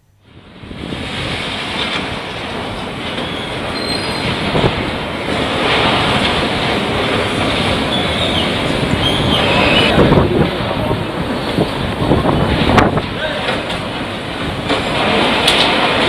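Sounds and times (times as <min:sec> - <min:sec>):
metal screeches: 0:07.9 - 0:10.1
machinery crushing metal sheeting: 0:12.5 - 0:16.0.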